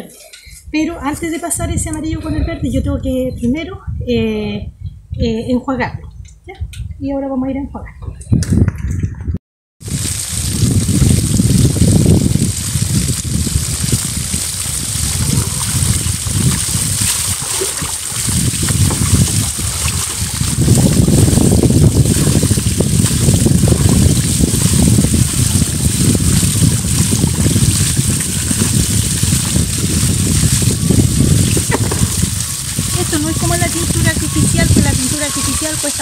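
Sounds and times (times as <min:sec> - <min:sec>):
bucket of water pouring: 0:09.8 - 0:36.0
water running from a hose: 0:09.8 - 0:36.0
water splashing: 0:09.8 - 0:36.0.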